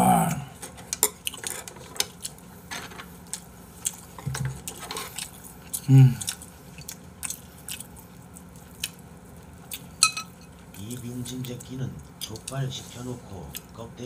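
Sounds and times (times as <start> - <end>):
chewing: 0.6 - 13.8
short vocal sound: 5.8 - 6.3
utensils tapping food containers: 10.0 - 10.5.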